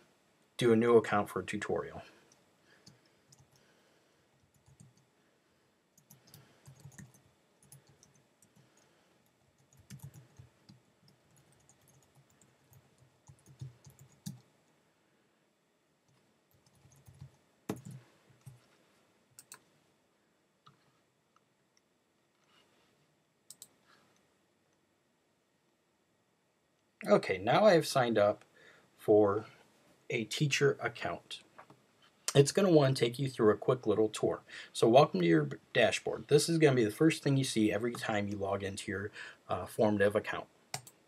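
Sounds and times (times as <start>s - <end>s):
keyboard keys clicking: 6.0s - 8.2s, 16.5s - 18.6s.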